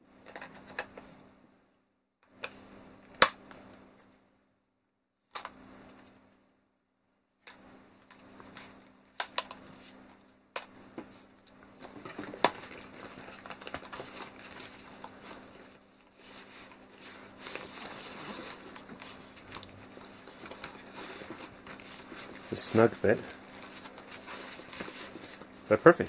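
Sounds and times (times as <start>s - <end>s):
fabric rustling and scraping: 11.1s - 25.8s.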